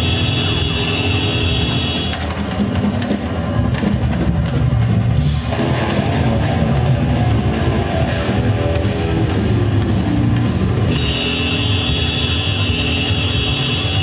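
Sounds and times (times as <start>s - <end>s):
drum kit with cymbals: 0.0s - 14.0s
electric guitar playing: 5.5s - 11.4s.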